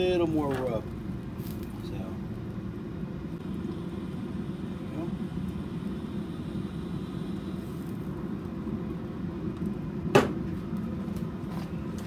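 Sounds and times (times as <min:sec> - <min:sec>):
steady low hum: 0:00.0 - 0:12.0
sharp knock: 0:10.1 - 0:10.4.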